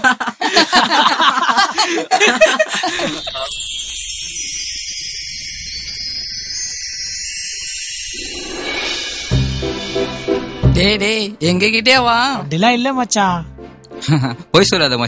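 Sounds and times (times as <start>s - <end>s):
people talking and laughing: 0.0s - 5.3s
shimmering bell-like music: 2.6s - 11.8s.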